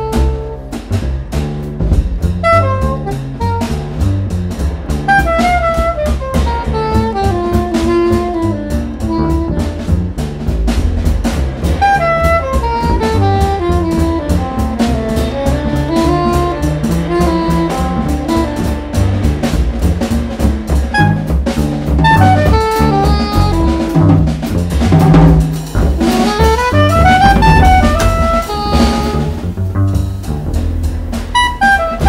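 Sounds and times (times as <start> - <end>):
soprano saxophone melody: 0.0 - 0.6, 2.4 - 3.8, 5.1 - 9.9, 11.8 - 19.0, 20.9 - 21.3, 22.0 - 24.2, 26.0 - 29.5, 31.3 - 32.0
drum kit with cymbals: 0.0 - 32.0
plucked double bass: 0.0 - 32.0.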